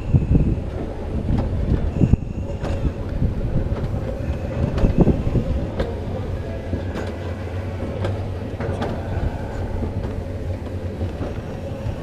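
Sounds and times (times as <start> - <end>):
faint steady hum: 0.0 - 12.0
sled wheels rumbling on rails: 0.0 - 12.0
wind on microphone: 0.0 - 12.0
clacks and knocks: 0.6 - 12.0.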